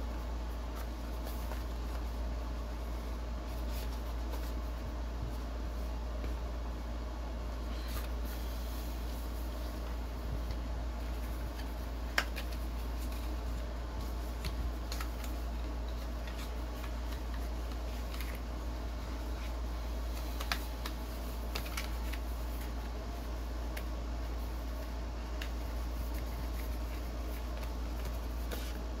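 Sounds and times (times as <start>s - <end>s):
steady low hum: 0.0s - 29.0s
paper packaging clicks and taps: 11.5s - 13.4s, 14.3s - 18.4s, 20.0s - 22.7s.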